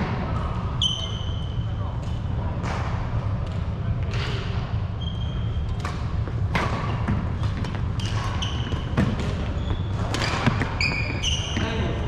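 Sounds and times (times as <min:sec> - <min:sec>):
racket hitting shuttlecock: 0:05.8 - 0:10.8
shoes squeaking on wooden floor: 0:07.6 - 0:11.9.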